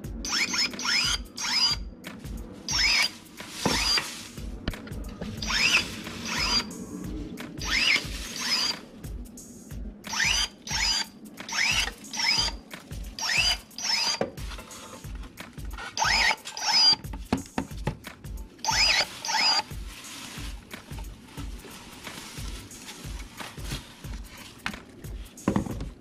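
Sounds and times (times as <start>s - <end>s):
electric pruning shears whining: 0.2s - 1.9s, 2.6s - 4.2s, 5.1s - 8.9s, 10.1s - 17.2s, 18.6s - 24.8s.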